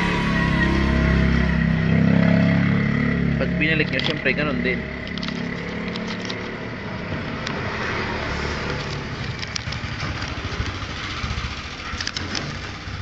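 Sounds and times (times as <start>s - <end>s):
plastic packaging crinkling: 3.8s - 6.6s
sharp clicks: 8.6s - 12.8s.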